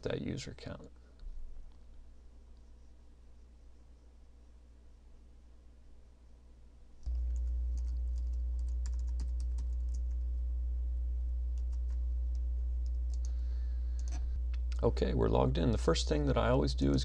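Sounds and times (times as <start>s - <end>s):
steady low hum: 0.0s - 17.0s
keyboard typing clicks: 7.0s - 10.2s, 11.6s - 13.4s.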